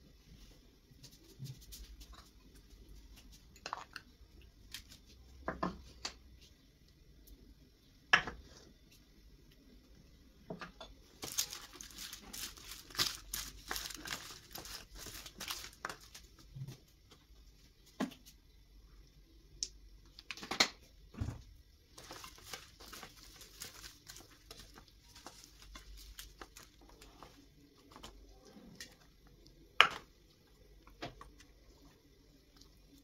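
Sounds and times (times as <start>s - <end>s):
crinkling and rustling: 11.1s - 18.4s, 21.2s - 29.6s.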